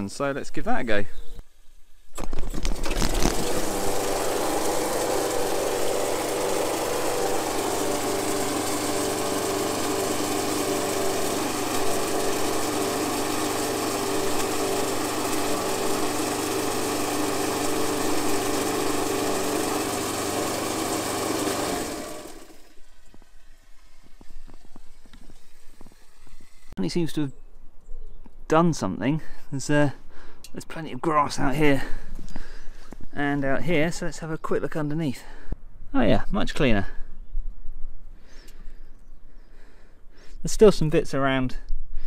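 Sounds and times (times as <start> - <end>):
lawnmower engine running: 2.4 - 26.8
water sluicing from hose: 2.6 - 26.8.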